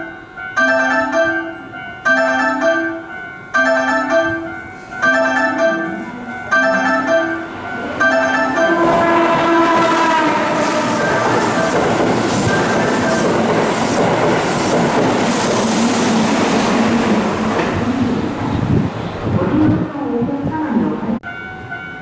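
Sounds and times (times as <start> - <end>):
train passing at speed: 0.0 - 22.0
train horn: 8.5 - 11.7.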